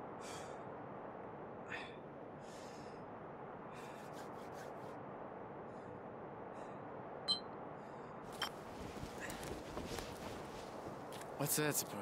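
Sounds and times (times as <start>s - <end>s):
coat rustling: 8.6s - 11.2s.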